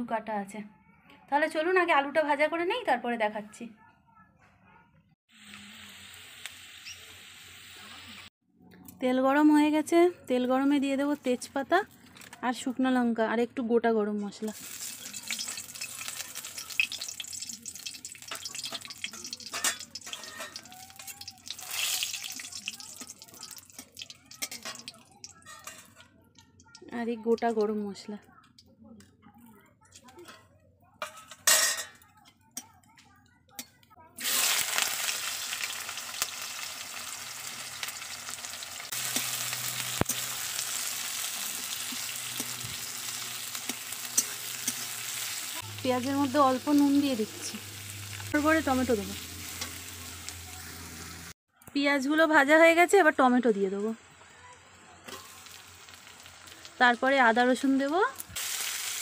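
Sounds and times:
spices sizzling in hot oil: 5.3s - 8.3s, 14.4s - 28.1s, 34.2s - 51.4s, 52.0s - 59.0s
oil crackling and popping: 14.5s - 27.8s, 34.2s - 51.3s, 54.5s - 59.0s
metal spatula clinking on wok: 14.8s - 20.8s, 22.2s - 26.0s, 31.0s - 32.7s, 43.6s - 45.0s.

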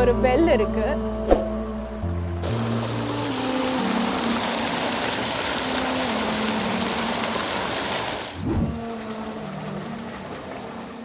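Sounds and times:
water gushing and splashing: 2.4s - 11.0s.

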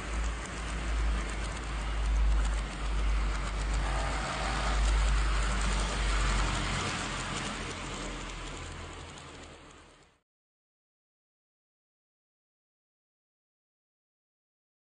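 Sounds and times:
light rattling crackle: 0.0s - 10.2s
model train rumbling on track: 0.0s - 10.2s.

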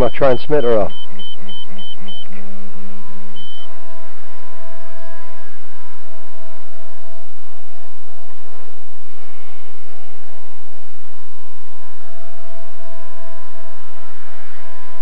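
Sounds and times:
transmitter beeping: 0.0s - 2.5s, 3.3s - 3.7s
rc helicopter whine: 0.0s - 15.0s.

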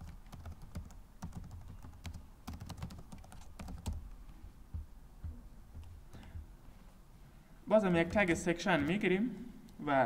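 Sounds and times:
computer keyboard typing: 0.0s - 6.4s.

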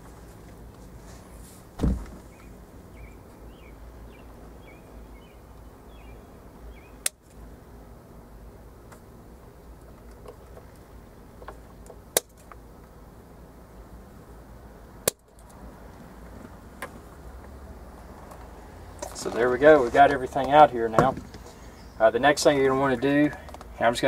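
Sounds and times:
dull thump: 1.8s - 2.3s, 20.9s - 21.4s
faint bird chirps: 2.3s - 7.0s.

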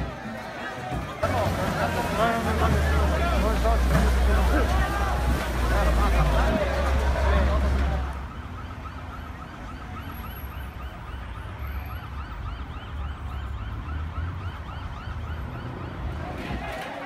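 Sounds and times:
siren yelping: 8.0s - 16.3s.

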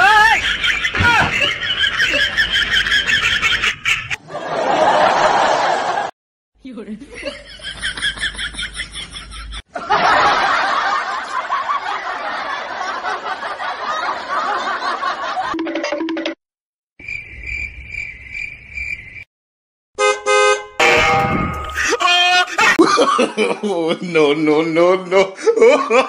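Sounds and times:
cricket chirp effect: 17.0s - 19.3s.

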